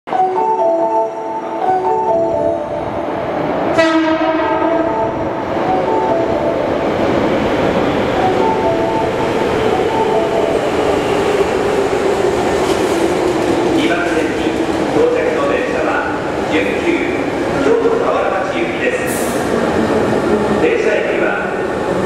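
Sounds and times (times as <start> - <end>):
train rumbling on rails: 1.3 - 22.0
train horn blast: 3.7 - 5.2.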